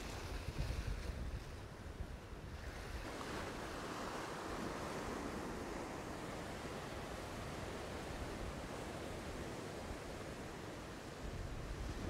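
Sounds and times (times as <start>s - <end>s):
wind buffeting microphone: 0.0s - 3.1s.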